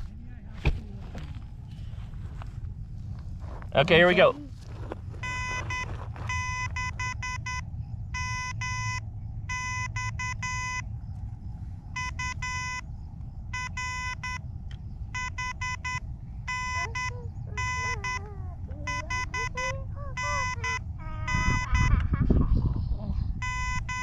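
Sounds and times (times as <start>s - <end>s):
low rumble: 0.0s - 24.0s
morse code beeps: 5.2s - 10.9s, 12.0s - 12.8s, 13.5s - 14.4s, 15.1s - 22.1s, 23.4s - 24.0s.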